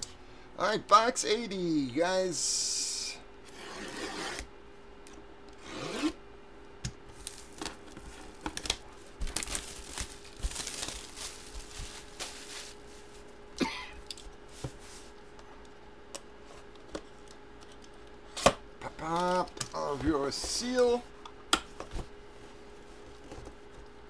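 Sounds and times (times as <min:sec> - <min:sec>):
faint steady hum: 0:00.0 - 0:24.0
plastic wrap crinkling and tearing: 0:07.1 - 0:13.4
cardboard box handling: 0:07.3 - 0:13.1.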